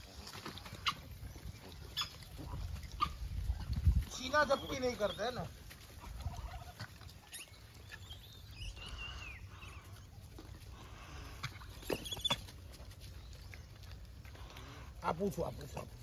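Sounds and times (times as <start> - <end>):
animals scrabbling on dry ground: 0.0 - 16.0
high squeaky animal calls: 1.8 - 3.6, 6.0 - 10.2, 11.2 - 12.5.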